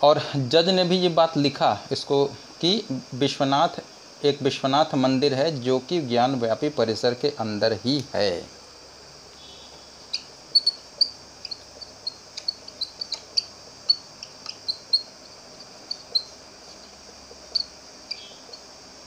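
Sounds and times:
high-pitched background hiss: 0:00.0 - 0:19.0
marker squeaking on whiteboard: 0:09.7 - 0:18.7.

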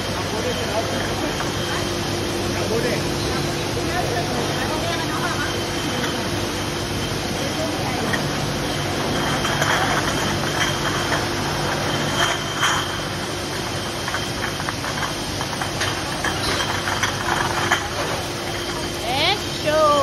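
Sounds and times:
machine hum and hiss: 0:00.0 - 0:20.0
glass bottles clinking: 0:02.8 - 0:20.0.

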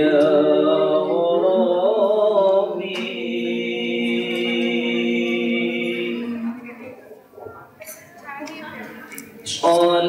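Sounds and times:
men singing a long note: 0:00.0 - 0:06.6.

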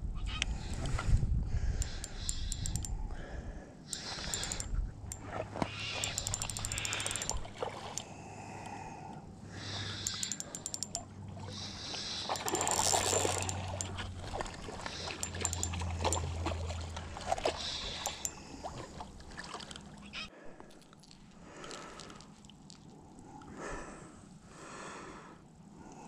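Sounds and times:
fishing reel clicking: 0:01.8 - 0:03.0, 0:03.9 - 0:05.2, 0:05.8 - 0:08.1, 0:09.7 - 0:14.2, 0:14.8 - 0:16.3, 0:17.5 - 0:18.4
fish splashing in water: 0:11.4 - 0:20.1.

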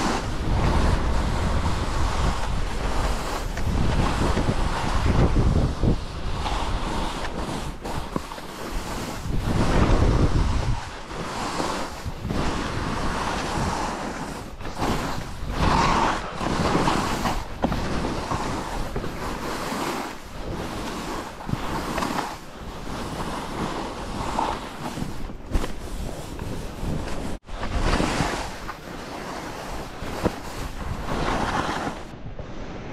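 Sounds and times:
skis scraping over snow: 0:00.0 - 0:32.9
wind rushing over microphone: 0:00.0 - 0:32.9.

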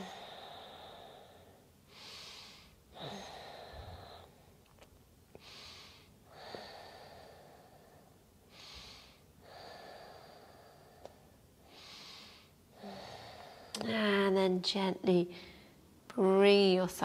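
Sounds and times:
woman breathing deeply: 0:00.0 - 0:04.6, 0:05.3 - 0:13.8, 0:15.3 - 0:15.8.

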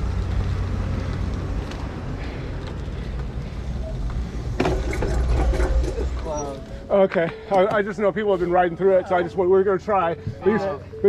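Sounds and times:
bicycle tyres rolling on road: 0:00.0 - 0:06.8.

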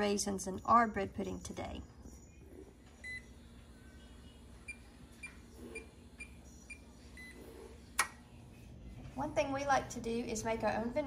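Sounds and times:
oven control panel beeps: 0:03.0 - 0:03.3, 0:04.7 - 0:07.4.

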